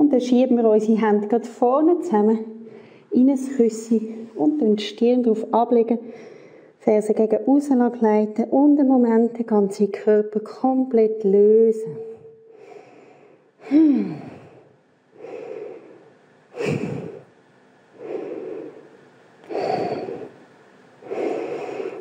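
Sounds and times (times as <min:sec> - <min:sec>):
woman breathing in and out: 0:02.6 - 0:03.2, 0:06.0 - 0:06.8, 0:11.9 - 0:22.0
woman sighing: 0:13.6 - 0:14.6.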